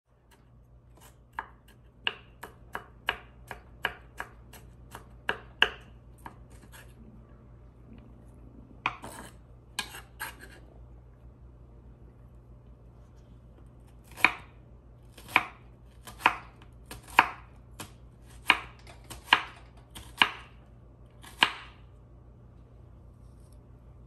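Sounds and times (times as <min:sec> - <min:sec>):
knife chopping on wooden board: 0:01.0 - 0:06.8, 0:14.0 - 0:14.5, 0:15.1 - 0:20.5, 0:21.2 - 0:21.8.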